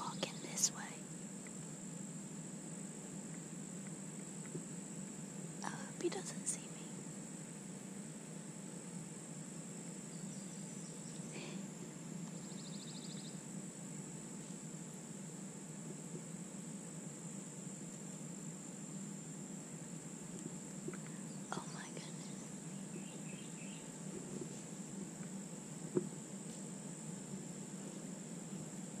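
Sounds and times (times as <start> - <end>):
rapid insect trill: 0.0 - 29.0
high-pitched insect drone: 9.6 - 15.8.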